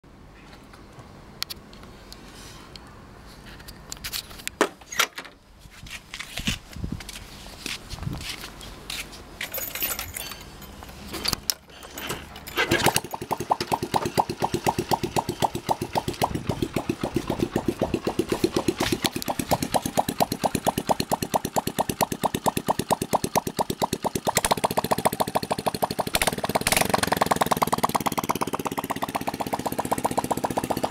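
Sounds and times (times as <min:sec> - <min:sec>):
kick-start clatter: 0:11.2 - 0:30.9
motorcycle engine idling putt-putt: 0:13.0 - 0:30.9.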